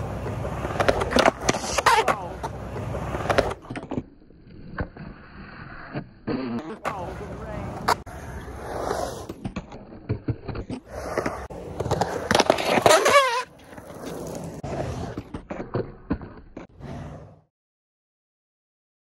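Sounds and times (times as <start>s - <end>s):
skateboard clacks and knocks: 0.0s - 3.9s
skateboard rolling on concrete: 0.0s - 17.5s.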